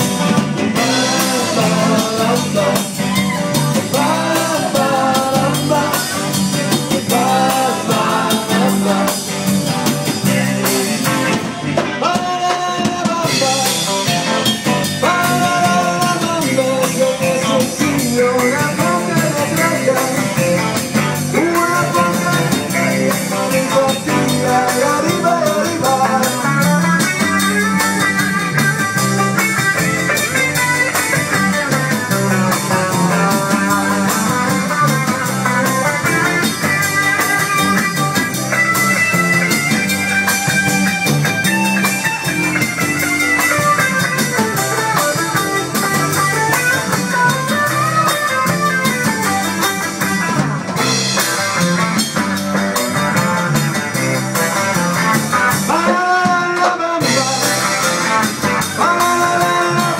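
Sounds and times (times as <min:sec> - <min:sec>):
bass guitar: 0:00.0 - 0:59.9
drum kit: 0:00.0 - 0:59.9
electric guitars: 0:00.0 - 0:59.9
lead vocals: 0:00.6 - 0:27.0, 0:55.5 - 0:59.9.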